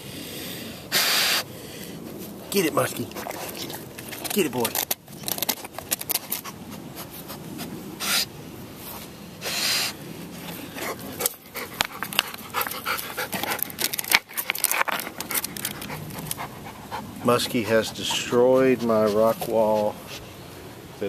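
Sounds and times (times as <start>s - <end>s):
dog panting: 2.9s - 4.4s, 10.7s - 20.3s
dog sniffing: 2.9s - 4.8s, 6.2s - 8.3s, 8.9s - 20.4s
rocks scraping and knocking: 13.4s - 15.9s.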